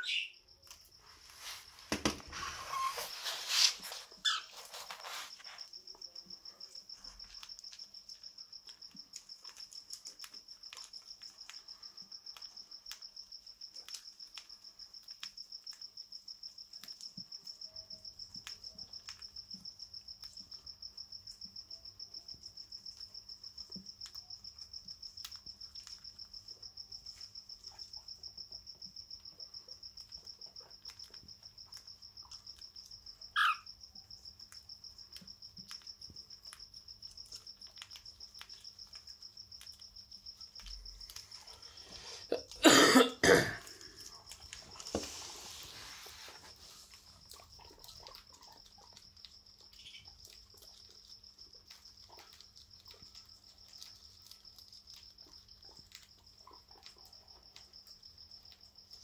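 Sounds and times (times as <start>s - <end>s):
bird chirp: 0.0s - 0.4s, 4.2s - 4.6s, 33.4s - 33.6s
birds pecking seed clicks: 46.9s - 57.6s.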